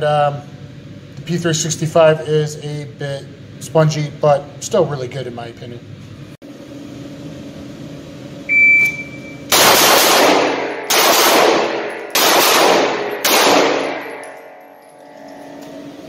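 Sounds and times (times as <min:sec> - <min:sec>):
shot timer beep: 0:08.5 - 0:09.5
pistol gunshots indoors: 0:09.5 - 0:14.6.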